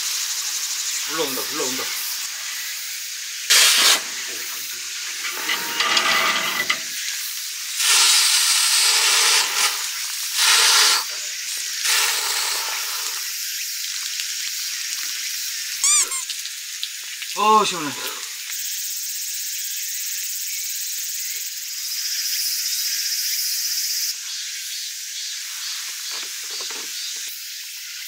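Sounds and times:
garden hose spraying water: 0.0 - 20.2.

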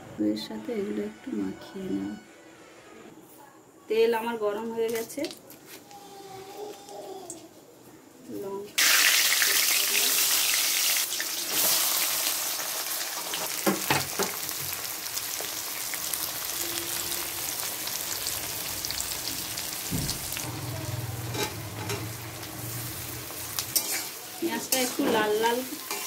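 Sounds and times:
onion sizzling in hot oil: 8.8 - 26.0.

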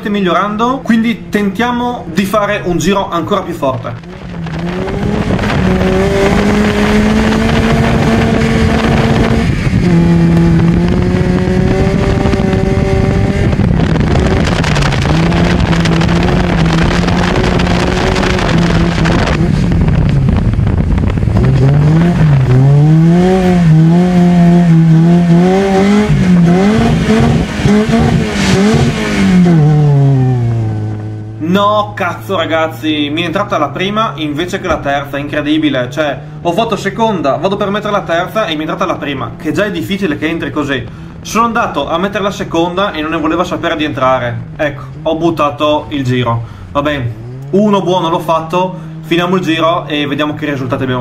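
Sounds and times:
car engine revving: 0.0 - 51.0
wind noise: 0.3 - 31.4.

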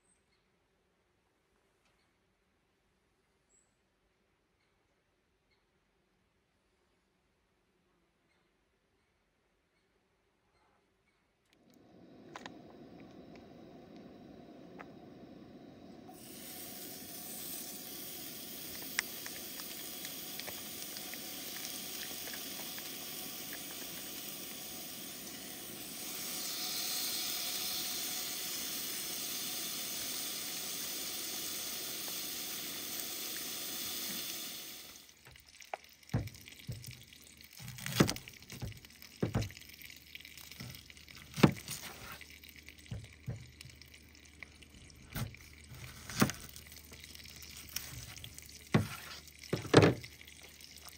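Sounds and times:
bacon sizzling in a pan: 16.1 - 39.7.

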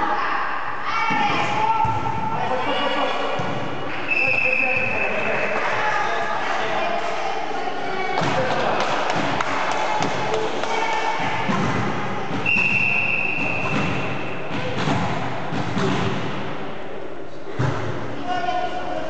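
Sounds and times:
referee's whistle blast: 12.4 - 13.9.

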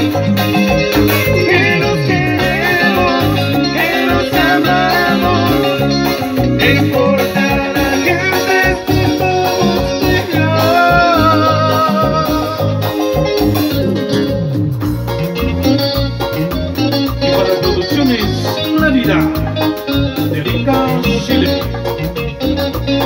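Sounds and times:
guitar melody: 0.0 - 23.0
pulsing bass beat: 0.0 - 23.0
person singing into a microphone: 1.1 - 13.2, 18.2 - 21.8.

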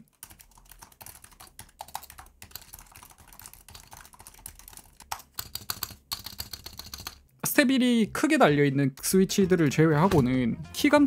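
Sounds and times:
rapid keyboard typing: 0.0 - 7.3.

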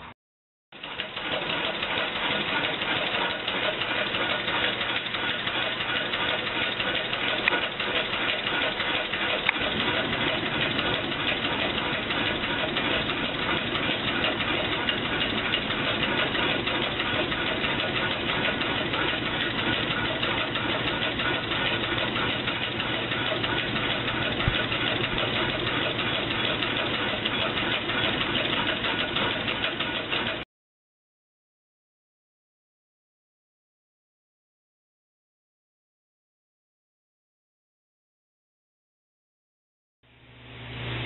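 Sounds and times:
air engine hissing and clattering: 0.9 - 30.4.

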